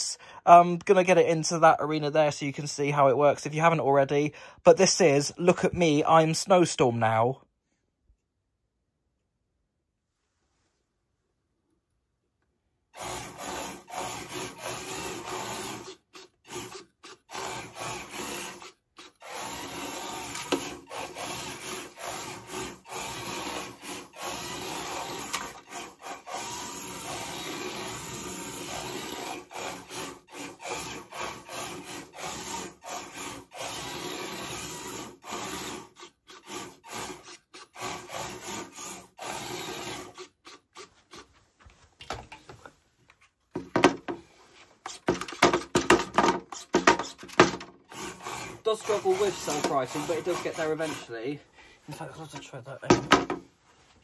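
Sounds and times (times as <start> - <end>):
robot drive motors whirring: 13.0 - 41.3, 46.5 - 51.1
wheels scrubbing on wood: 13.0 - 52.9.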